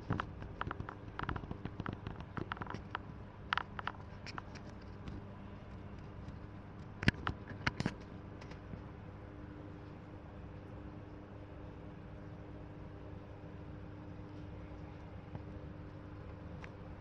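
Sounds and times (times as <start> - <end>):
light clicks and taps: 0.0 - 8.9, 14.2 - 16.9
faint steady hum: 0.0 - 17.0.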